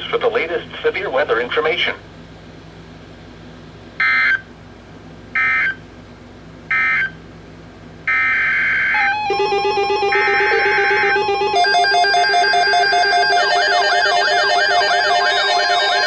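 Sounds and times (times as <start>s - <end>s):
weather radio alarm beeping: 8.1s - 16.0s.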